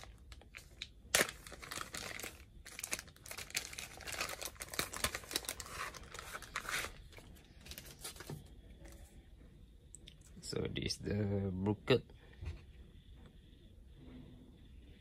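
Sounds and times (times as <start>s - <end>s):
plastic packaging crinkling: 0.0s - 9.0s.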